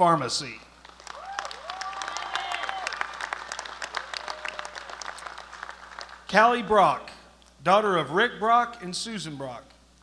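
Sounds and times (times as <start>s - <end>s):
audience applauding: 0.8s - 6.3s
people cheering: 1.0s - 5.6s.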